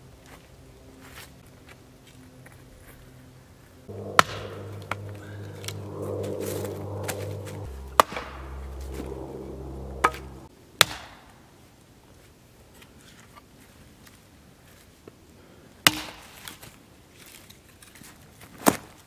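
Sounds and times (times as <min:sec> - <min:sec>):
hatchet splitting wood: 0:15.9 - 0:16.2.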